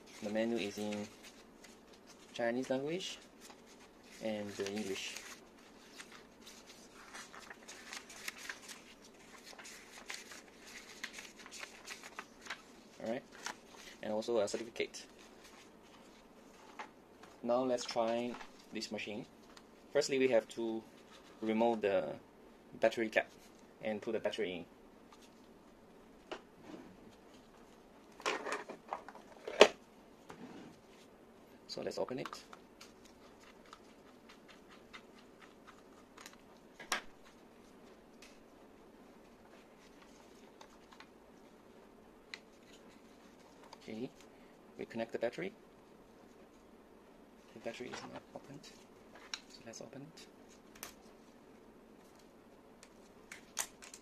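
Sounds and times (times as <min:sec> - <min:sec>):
paper pages rustling: 0:00.0 - 0:16.8.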